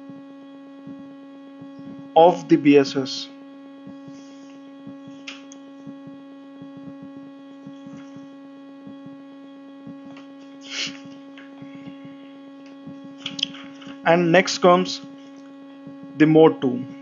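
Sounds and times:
electrical hum: 0:00.0 - 0:17.0
short hiss: 0:10.6 - 0:11.1.

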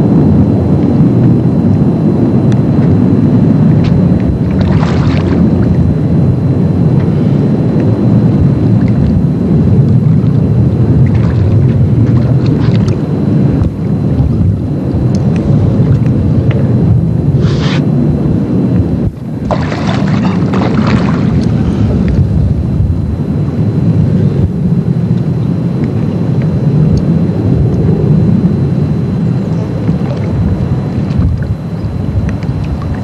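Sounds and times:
wind buffeting microphone: 0:00.0 - 0:33.0
burst of hiss: 0:17.4 - 0:17.8.

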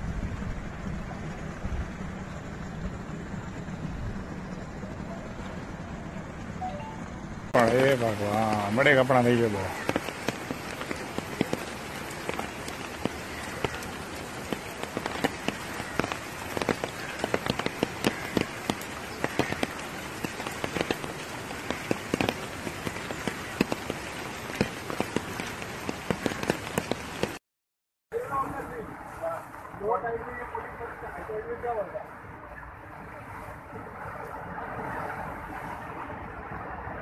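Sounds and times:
heavy rain hissing: 0:07.6 - 0:27.4
raindrops tapping close: 0:07.6 - 0:27.4.

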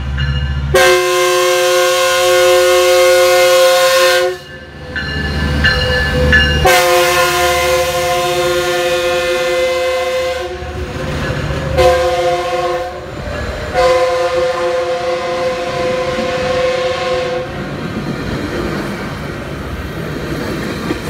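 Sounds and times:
train cars rumbling and clattering: 0:00.0 - 0:21.0
locomotive horn blasts: 0:00.7 - 0:04.5, 0:06.6 - 0:10.8, 0:11.8 - 0:13.1, 0:13.7 - 0:17.6.

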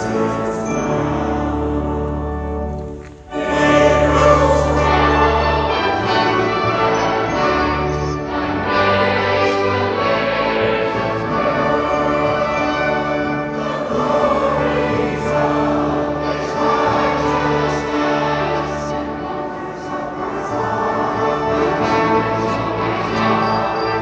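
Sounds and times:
church choir singing: 0:00.0 - 0:24.0
orchestra accompaniment: 0:00.0 - 0:24.0.

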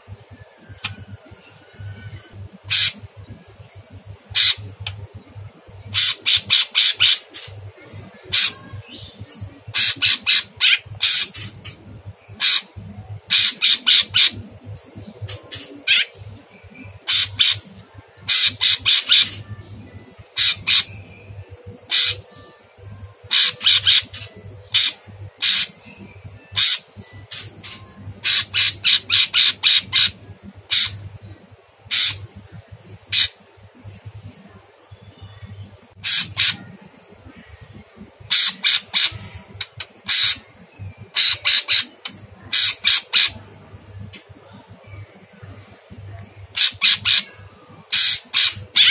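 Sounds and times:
bird calling in harsh volleys: 0:04.3 - 0:04.6, 0:36.0 - 0:36.7.

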